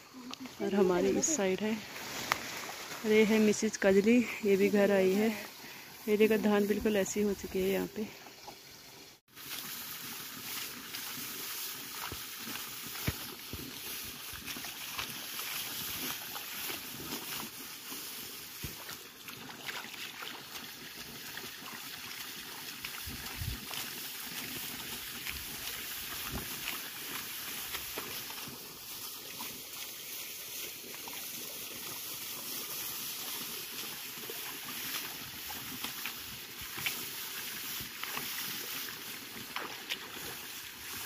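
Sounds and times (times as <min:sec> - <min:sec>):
paddy stalks rustling and crackling: 0:00.0 - 0:08.0, 0:09.3 - 0:41.0
feet sloshing in muddy water: 0:09.3 - 0:41.0.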